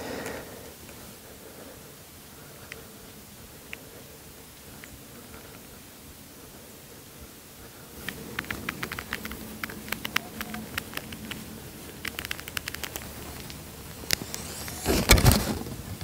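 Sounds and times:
footsteps in dry grass and leaves: 7.8s - 15.9s
sharp click: 12.0s - 15.6s.

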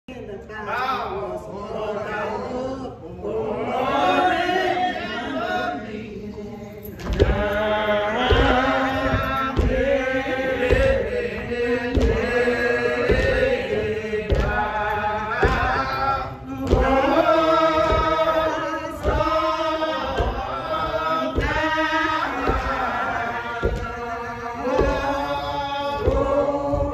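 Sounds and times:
low thumps: 7.0s - 26.9s.

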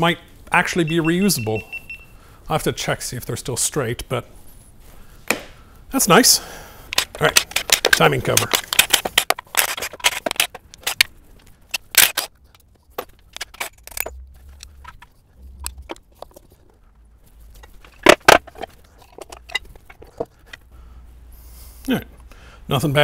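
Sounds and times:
metal tools clicking and clanking: 6.9s - 11.1s, 11.7s - 16.5s, 17.5s - 20.6s.

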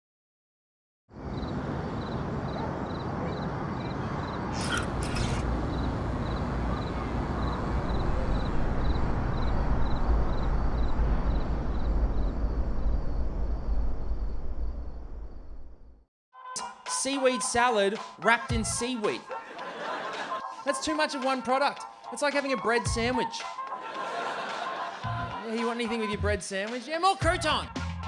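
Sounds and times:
low rumble like wind: 5.5s - 16.0s.

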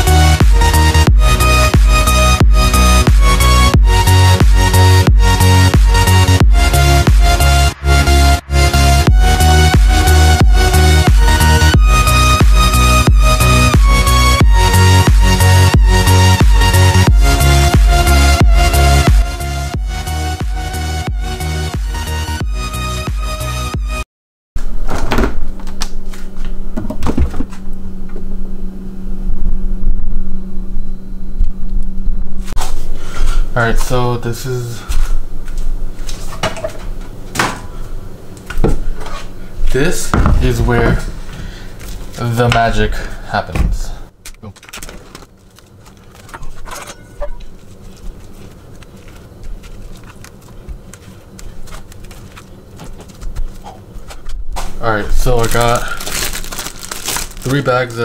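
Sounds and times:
refrigerator door opening: 24.6s - 28.2s, 40.0s - 41.5s
appliance hum: 24.6s - 58.0s
low rumble: 27.6s - 32.6s
plastic wrap crinkling: 44.4s - 54.4s, 55.0s - 58.0s.

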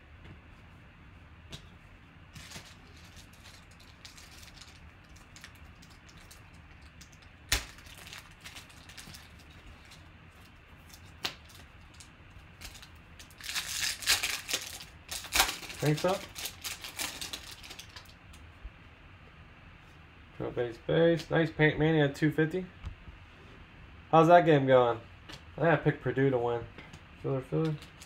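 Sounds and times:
foil wrapper tearing: 2.4s - 18.2s.

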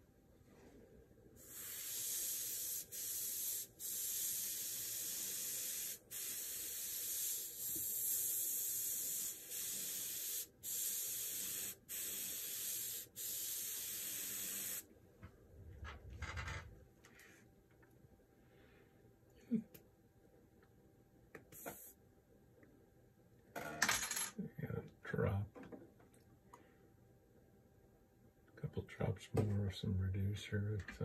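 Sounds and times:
airbrush spraying hiss: 1.4s - 14.9s, 21.5s - 22.0s.

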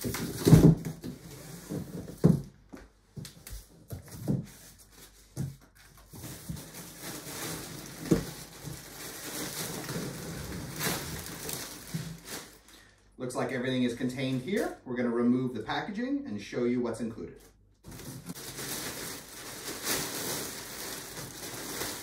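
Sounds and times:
plastic wrapping rustling: 0.0s - 2.4s, 3.2s - 13.0s, 17.8s - 22.0s.

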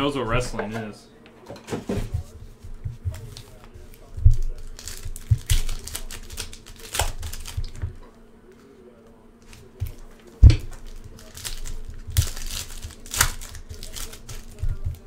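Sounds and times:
foil wrappers tearing and crinkling: 3.1s - 8.0s, 9.4s - 15.0s.

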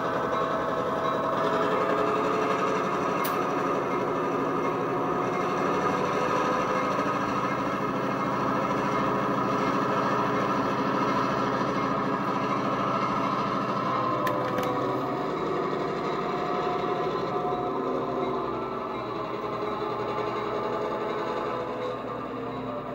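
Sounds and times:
diesel engine throbbing through speakers: 0.0s - 22.9s
sharp click: 3.2s - 3.4s.

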